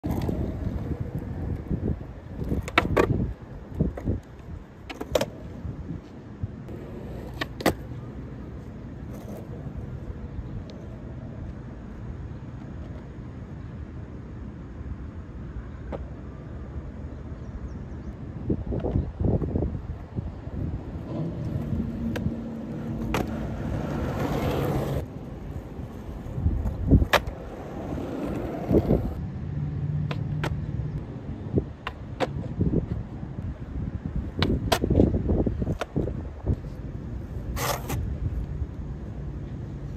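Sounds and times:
skateboard wheels rolling on asphalt: 0.0 - 39.9.

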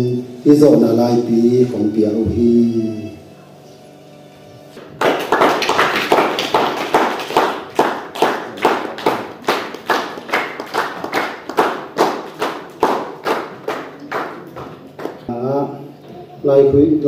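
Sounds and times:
audience rhythmic clapping: 4.8 - 15.3.

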